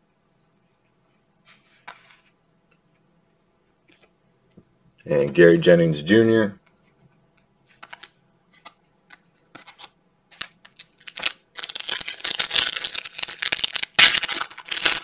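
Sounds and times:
foil wrapper crinkling: 10.4s - 15.0s.

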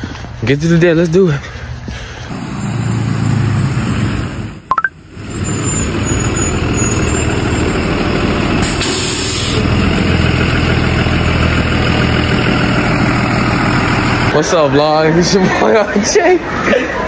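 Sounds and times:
bus engine running: 1.8s - 14.9s
air brakes hissing: 8.6s - 9.7s.

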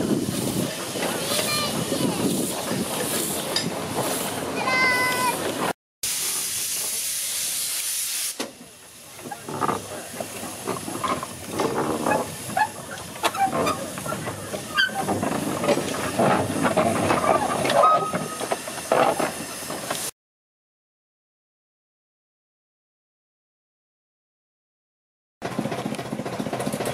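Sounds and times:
locomotive moving along track: 0.0s - 20.1s, 25.4s - 26.9s
steam locomotive hissing steam: 0.0s - 20.1s.

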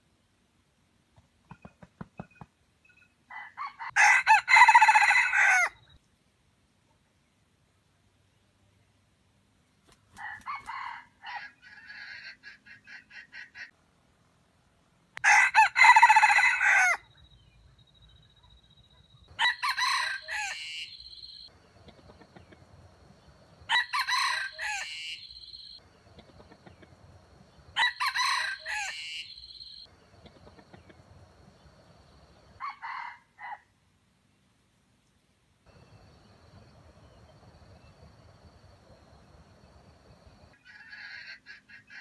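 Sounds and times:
rooster crowing: 3.3s - 5.8s, 10.2s - 12.3s, 15.2s - 17.1s, 19.3s - 21.4s, 23.7s - 25.8s, 27.8s - 29.9s, 32.6s - 33.6s.

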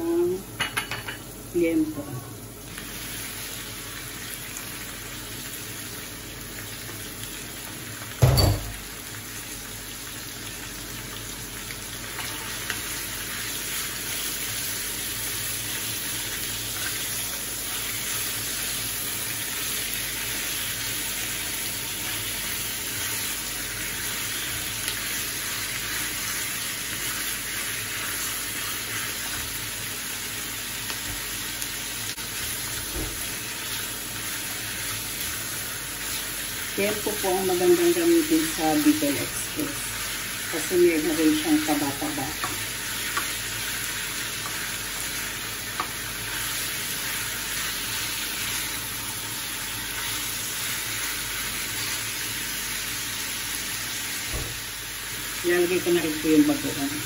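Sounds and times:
meat sizzling in a pan: 0.0s - 57.0s.

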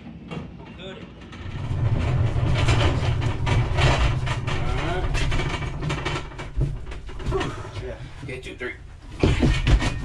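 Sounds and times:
loaded dolly rolling on trailer floor: 1.0s - 7.8s.

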